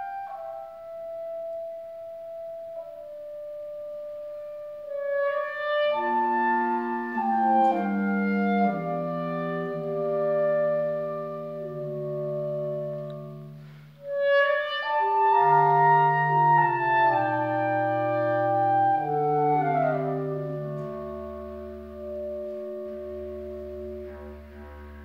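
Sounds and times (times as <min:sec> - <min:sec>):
clarinets and strings playing chords: 0:05.1 - 0:25.0.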